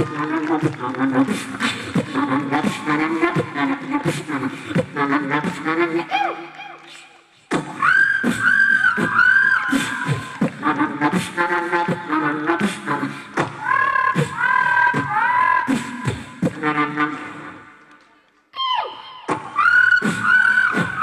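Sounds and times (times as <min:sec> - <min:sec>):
boy beatboxing into a microphone: 0:00.0 - 0:17.9, 0:18.6 - 0:21.0.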